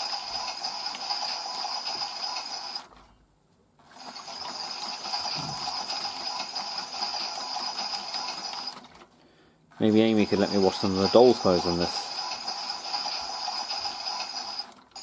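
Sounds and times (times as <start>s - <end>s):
toy washing machine whirring: 0.0s - 3.1s, 3.8s - 9.1s, 9.7s - 15.0s.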